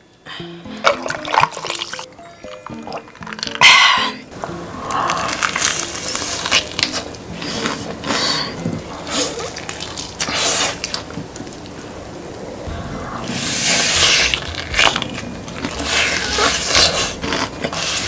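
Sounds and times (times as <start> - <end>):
crunchy chewing: 4.8 - 11.9, 13.6 - 18.0.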